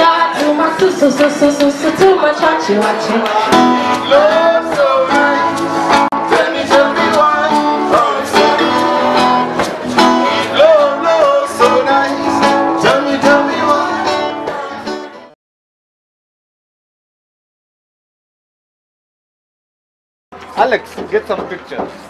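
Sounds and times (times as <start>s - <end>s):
people singing: 0.0s - 15.3s
acoustic guitar strumming: 0.0s - 15.4s.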